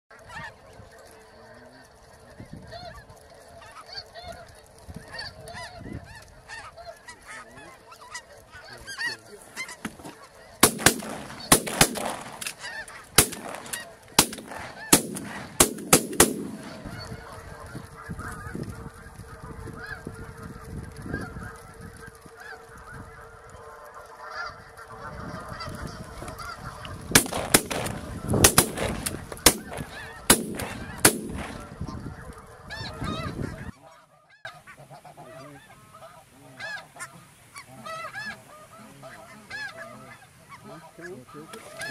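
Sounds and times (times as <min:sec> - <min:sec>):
geese calling: 0:00.1 - 0:41.9
shotgun shots: 0:10.6 - 0:17.2, 0:27.1 - 0:31.8.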